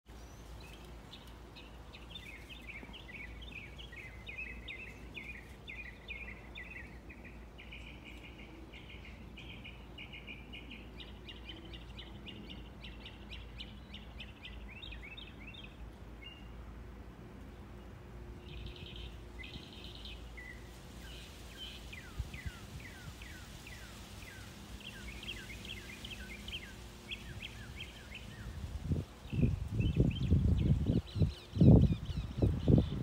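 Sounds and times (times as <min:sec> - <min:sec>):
birds chirping: 0:00.1 - 0:33.0.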